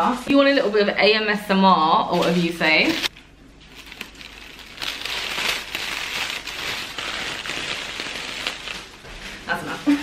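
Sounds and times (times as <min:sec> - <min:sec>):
tissue paper crinkling: 0:02.1 - 0:09.8.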